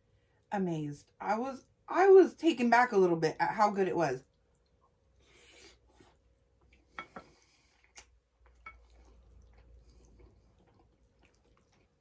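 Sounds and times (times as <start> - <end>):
chewing pasta: 4.2 - 12.0.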